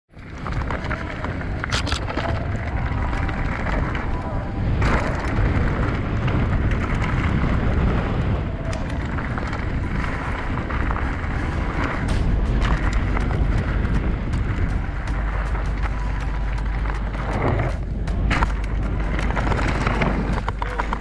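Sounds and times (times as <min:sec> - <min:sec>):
bike clicking and rattling: 0:00.1 - 0:21.0
bike tyres crunching: 0:00.1 - 0:21.0
wind buffeting microphone: 0:00.1 - 0:21.0.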